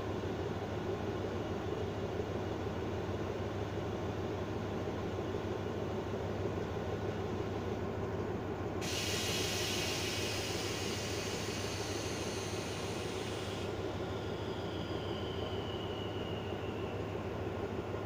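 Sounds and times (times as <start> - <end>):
diesel locomotive idling: 0.1 - 18.0
high hiss: 8.8 - 17.1
faint falling whine: 13.8 - 18.0.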